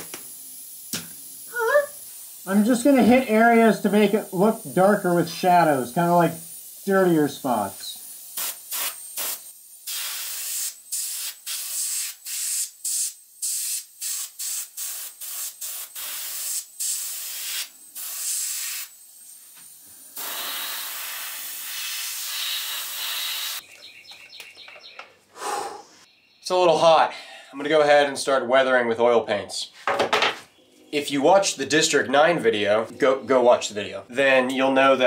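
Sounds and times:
airbrush spraying hiss: 0:00.0 - 0:23.6.

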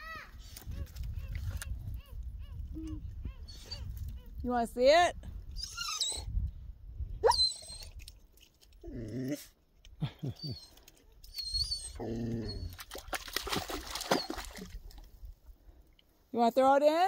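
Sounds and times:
dog whining high-pitched: 0:05.6 - 0:06.3, 0:07.2 - 0:07.9, 0:10.4 - 0:12.8
dog whimpering: 0:10.4 - 0:12.8.

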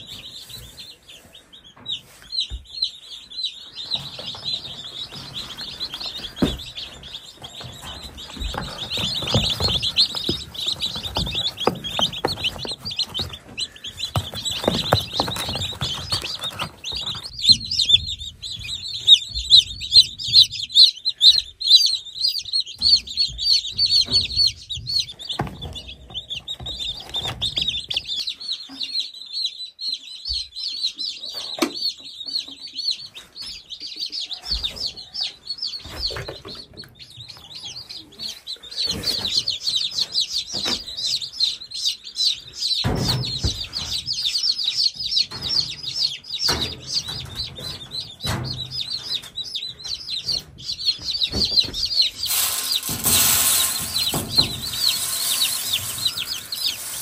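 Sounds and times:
chicks peeping: 0:00.0 - 0:57.0
brooder knocks and rustles: 0:03.9 - 0:20.9, 0:22.8 - 0:28.3, 0:42.8 - 0:44.2, 0:45.0 - 0:57.0.

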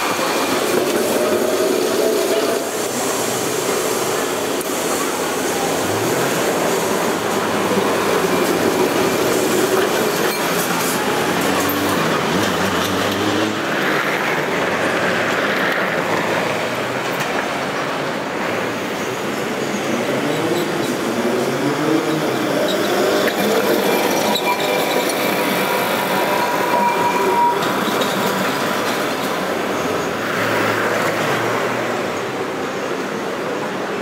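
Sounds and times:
streetcars rumbling on rails: 0:00.0 - 0:34.0
wheels squealing on track: 0:00.1 - 0:14.4, 0:18.9 - 0:31.2.

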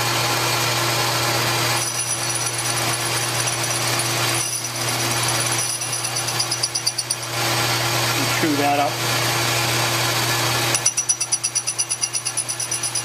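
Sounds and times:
metal lathe motor hum: 0:00.0 - 0:13.0.

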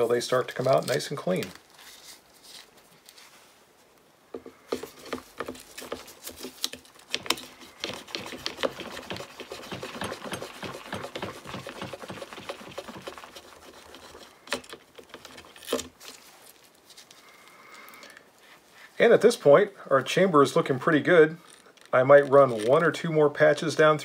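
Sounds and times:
brush scrubbing in rifle chamber: 0:04.7 - 0:17.2.

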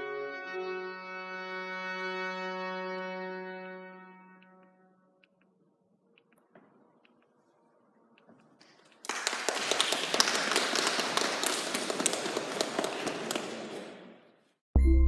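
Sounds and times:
audience applauding: 0:08.6 - 0:14.1.

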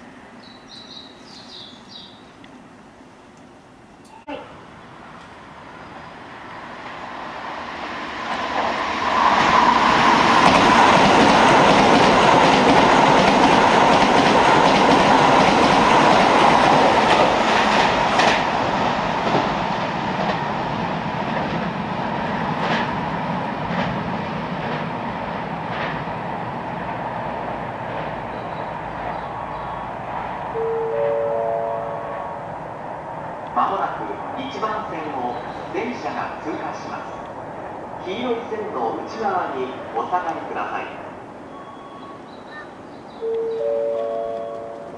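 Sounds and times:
train wheels clacking over rail joints: 0:09.3 - 0:18.6.

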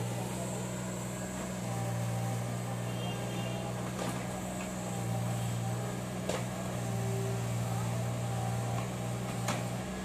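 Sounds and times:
excavator diesel engine humming: 0:00.0 - 0:10.0.

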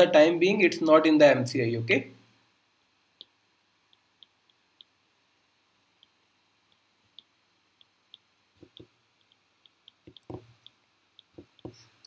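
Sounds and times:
stylus ticking on tablet screen: 0:03.2 - 0:05.0, 0:05.8 - 0:12.0
soft knocks: 0:10.1 - 0:10.5.

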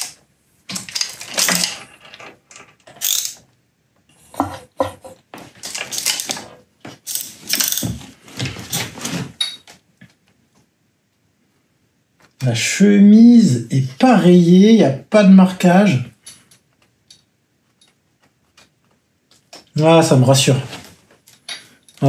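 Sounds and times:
ratchet wrench clicking: 0:03.0 - 0:03.4.

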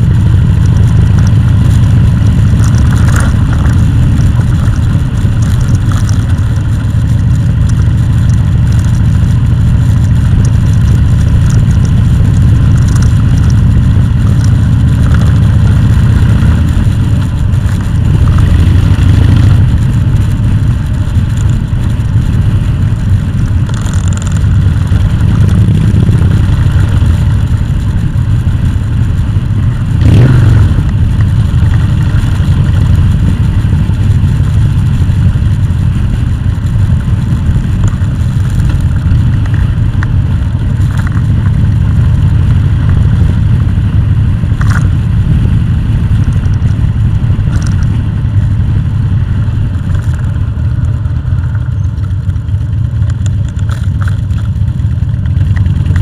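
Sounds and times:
vehicle engine rumbling: 0:00.0 - 0:56.0.

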